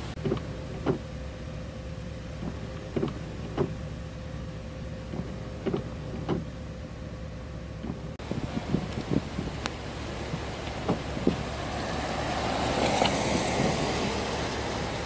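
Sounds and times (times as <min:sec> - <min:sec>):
vehicle cabin hum: 0:00.0 - 0:15.0
windshield wipers knocking: 0:00.1 - 0:01.1, 0:02.4 - 0:03.8, 0:05.0 - 0:06.6, 0:07.8 - 0:15.0.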